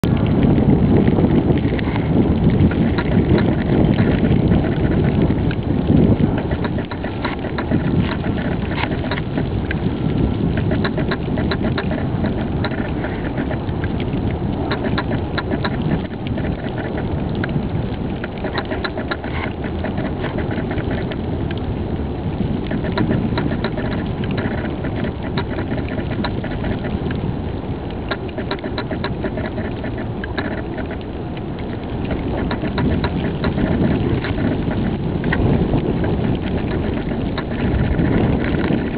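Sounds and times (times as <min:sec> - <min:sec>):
wind buffeting microphone: 0:00.0 - 0:38.9
small sharp clicks: 0:27.9 - 0:35.6.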